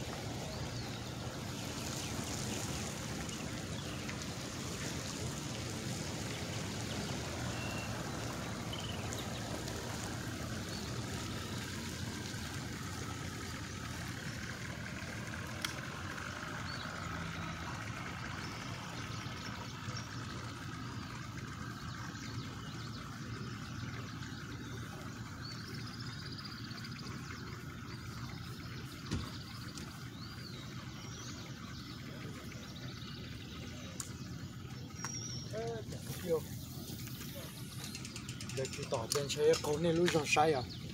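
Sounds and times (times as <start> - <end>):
distant engine rumble: 0.0 - 40.9.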